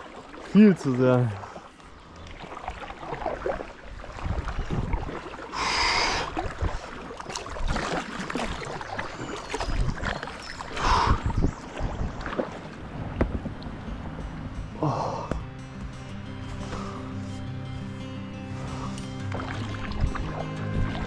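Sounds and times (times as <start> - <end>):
paddle swishing through water: 0.0 - 14.2, 15.4 - 21.0
wind rumble on microphone: 3.9 - 5.2, 10.8 - 14.6.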